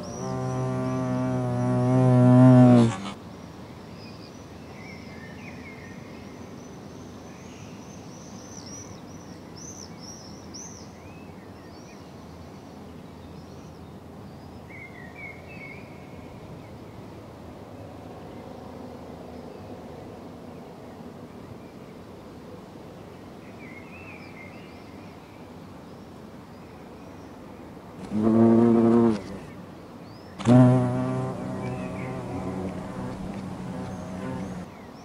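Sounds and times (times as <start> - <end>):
small birds chirping: 0.0 - 1.9, 28.0 - 35.0
outdoor background hiss: 0.0 - 35.0.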